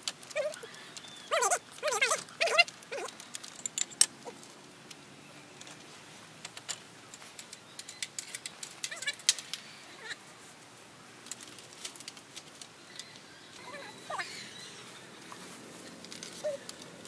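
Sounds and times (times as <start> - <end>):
light clicks and clinks: 0.0 - 5.0.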